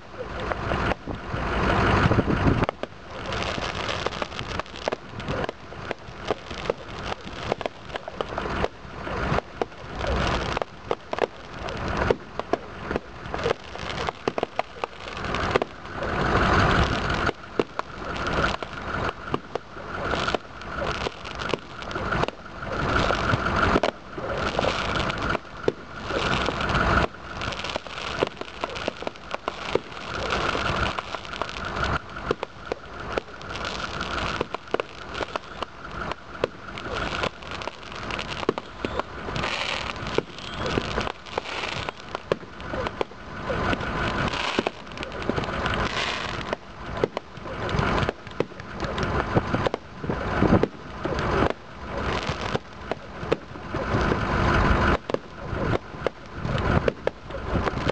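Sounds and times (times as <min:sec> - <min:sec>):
fireworks launching: 0:00.0 - 0:57.9
fireworks popping and crackling: 0:00.0 - 0:57.9.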